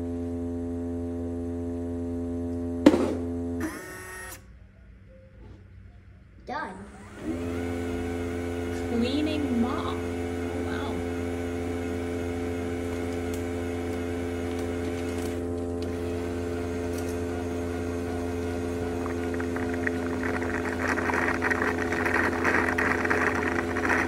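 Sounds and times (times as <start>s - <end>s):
motor hum: 0.0s - 4.5s, 6.4s - 24.0s
rough scrubbing noise: 18.6s - 24.0s.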